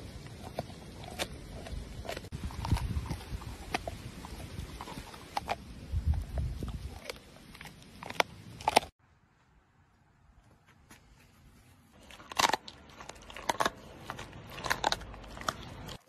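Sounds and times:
dog gnawing on a bone: 0.2s - 8.9s, 12.0s - 16.0s.

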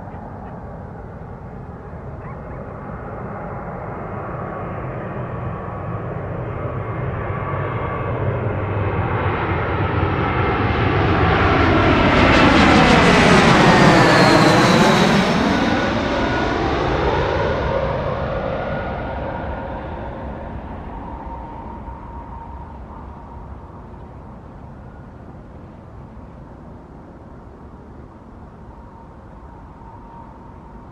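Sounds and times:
jet airliner passing overhead: 0.0s - 30.9s
jet fan whine: 10.8s - 30.9s.

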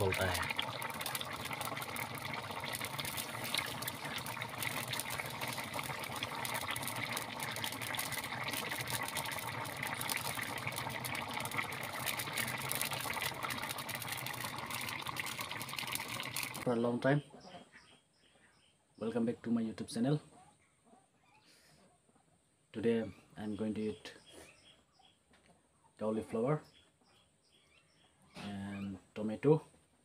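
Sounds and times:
curry bubbling with pops: 0.0s - 16.7s
wood fire crackling: 0.0s - 16.7s.

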